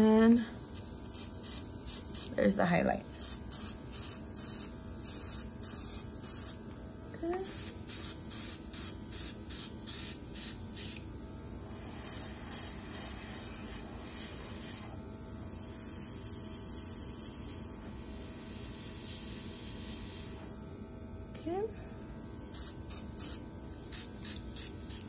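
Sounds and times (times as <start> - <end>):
airbrush spraying hissing puffs: 0.6 - 2.4, 3.1 - 20.6, 22.4 - 25.0
steady low air hiss: 7.5 - 20.8.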